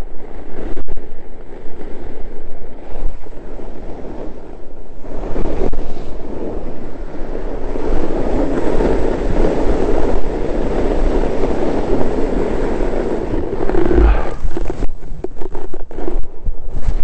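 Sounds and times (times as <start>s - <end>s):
wind buffeting microphone: 0.0s - 17.0s
snowboard scraping on snow: 10.7s - 17.0s.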